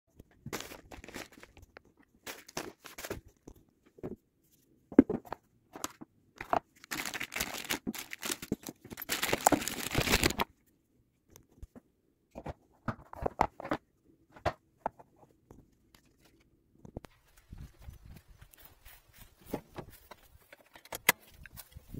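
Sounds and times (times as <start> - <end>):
plastic bags crinkling: 0.5 - 3.3, 6.7 - 10.5
small clicks and knocks: 20.0 - 21.8.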